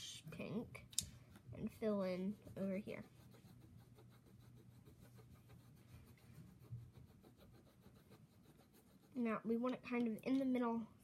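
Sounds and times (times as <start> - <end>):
faint low hum: 0.0 - 11.0
colored pencil scratching on paper: 1.6 - 10.3.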